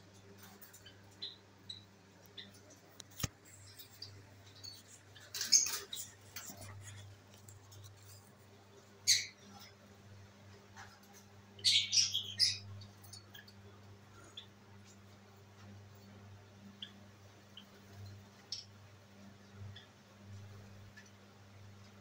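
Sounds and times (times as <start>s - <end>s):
lovebirds chirping: 0.2s - 7.1s, 8.9s - 9.8s, 10.8s - 15.0s.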